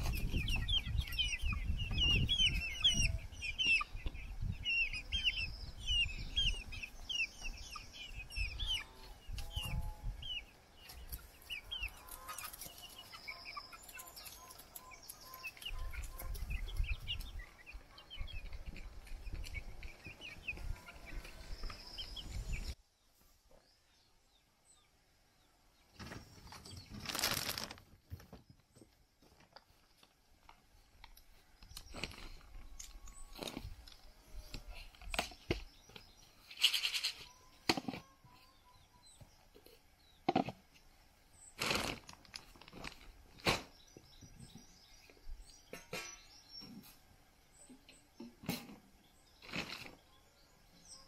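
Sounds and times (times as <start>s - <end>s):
plastic crunching and rustling: 26.9s - 27.9s, 41.6s - 43.5s.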